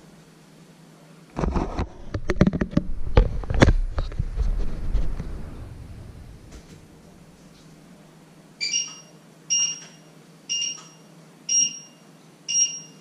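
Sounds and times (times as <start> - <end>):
electronic alarm beeping: 8.6 - 13.0.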